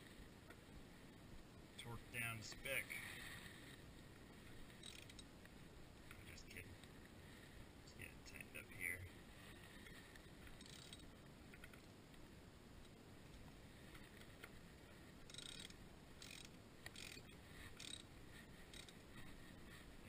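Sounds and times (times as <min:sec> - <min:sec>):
raspy ratchet wrench strokes: 0:04.8 - 0:05.2, 0:10.6 - 0:11.1, 0:15.3 - 0:19.0.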